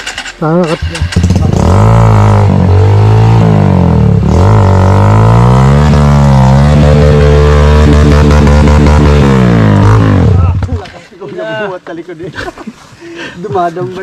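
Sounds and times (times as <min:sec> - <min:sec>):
dirt bike engine revving hard: 0:01.0 - 0:10.6.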